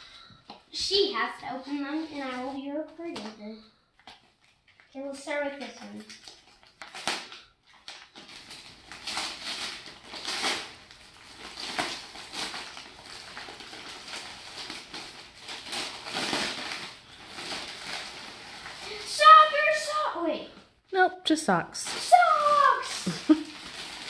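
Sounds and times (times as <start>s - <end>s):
wrapping paper tearing: 4.0s - 20.4s, 21.8s - 24.0s.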